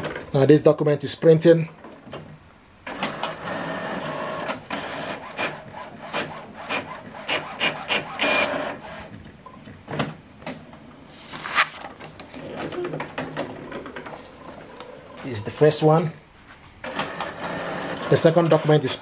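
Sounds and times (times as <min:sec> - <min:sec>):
paper feeding rush: 0:02.9 - 0:09.2
printer motor whirring: 0:02.9 - 0:09.2, 0:16.8 - 0:18.9.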